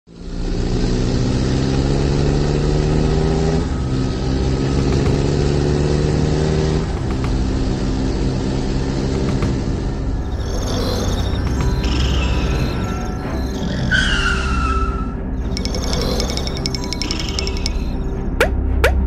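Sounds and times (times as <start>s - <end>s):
toy truck engine hum: 15.4s - 18.0s.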